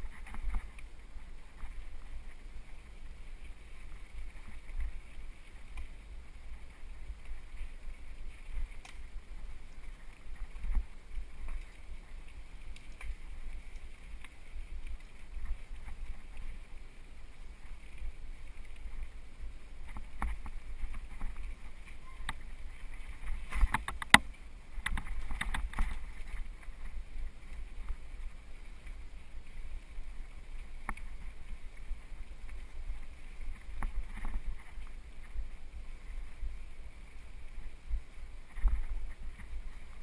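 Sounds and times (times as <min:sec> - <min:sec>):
low rumble of wind and vibration: 0:00.0 - 0:40.0
bike rattling clicks: 0:23.4 - 0:26.3.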